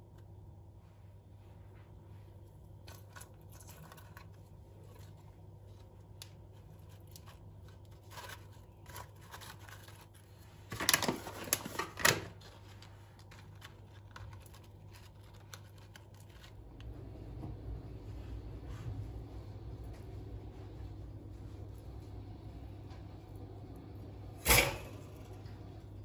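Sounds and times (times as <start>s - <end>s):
low steady hum: 0.0s - 26.0s
crinkly scraping: 2.8s - 17.1s.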